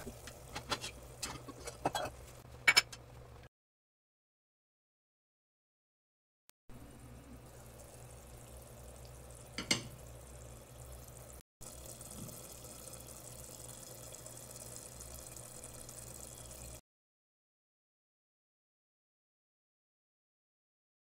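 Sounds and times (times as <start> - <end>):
curry bubbling in a pot: 7.3 - 16.8.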